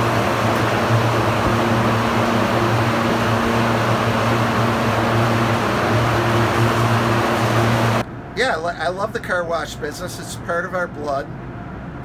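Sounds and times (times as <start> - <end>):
electric hum: 0.0 - 9.2.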